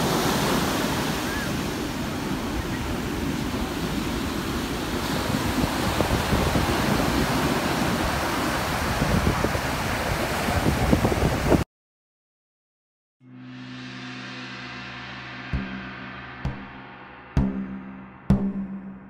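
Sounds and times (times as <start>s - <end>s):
ocean surf breaking on beach: 0.0s - 11.6s
wind buffeting microphone: 0.0s - 11.6s.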